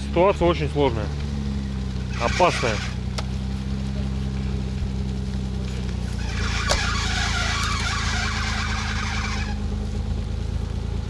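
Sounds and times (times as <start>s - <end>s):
car engine running: 0.0s - 11.0s
rasping noise: 6.1s - 9.6s.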